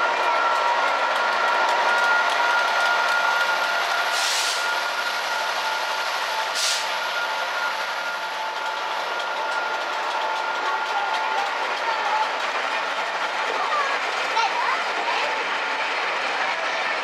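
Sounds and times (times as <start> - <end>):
train coaches rolling past: 0.0 - 17.0
short hisses: 6.6 - 7.0.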